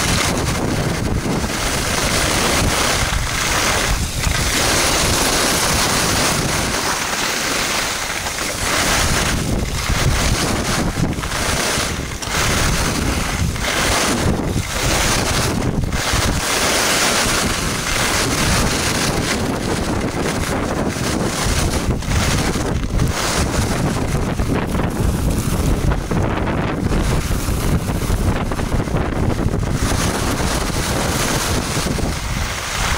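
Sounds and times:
skis scraping on snow: 0:00.0 - 0:32.9
wind rushing over microphone: 0:00.0 - 0:32.9.

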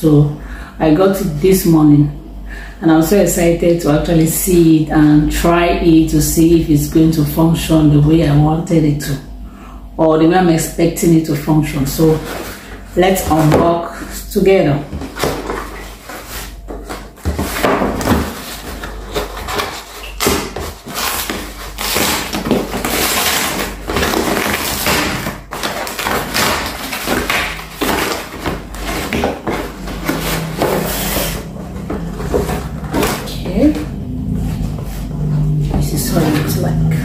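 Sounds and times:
cardboard ripping and rustling: 0:12.0 - 0:13.8, 0:14.9 - 0:35.1.

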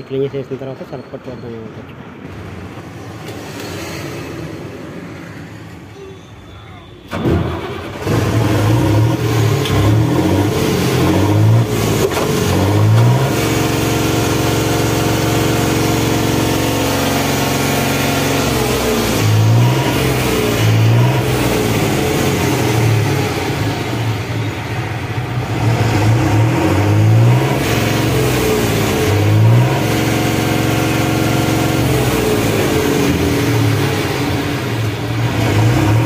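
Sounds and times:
diesel truck engine revving: 0:07.1 - 0:36.0.

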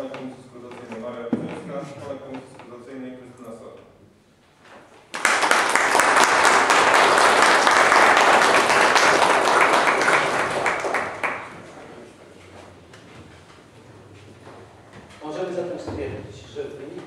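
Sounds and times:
people applauding: 0:05.1 - 0:11.8.

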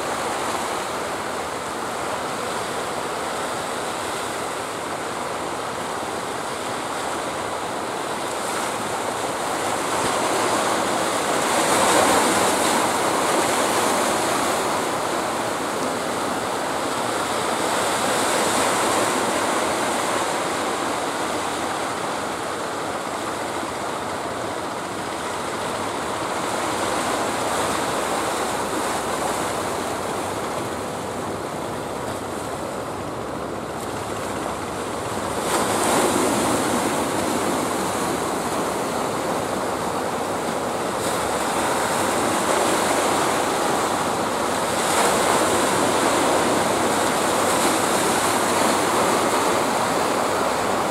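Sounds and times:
sea surf breaking: 0:00.0 - 0:50.9.

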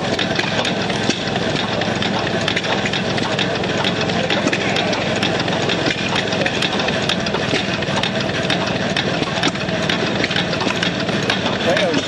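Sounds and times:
steam engine running: 0:00.0 - 0:12.0.

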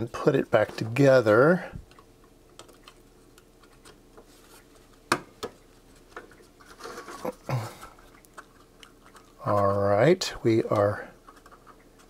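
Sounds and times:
parts rubbing and scraping: 0:06.3 - 0:07.5.

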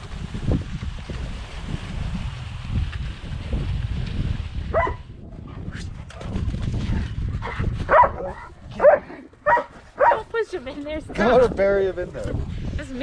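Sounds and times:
wind rushing over microphone: 0:00.0 - 0:13.0
dogs yipping and barking: 0:04.7 - 0:05.0, 0:07.9 - 0:10.3.

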